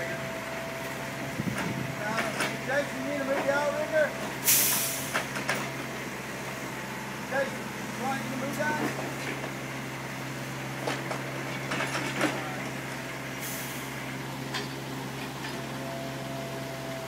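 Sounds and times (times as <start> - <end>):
excavator diesel engine running: 0.0 - 17.0
short hiss: 4.4 - 5.3
metal knocks and clanks: 10.8 - 12.5.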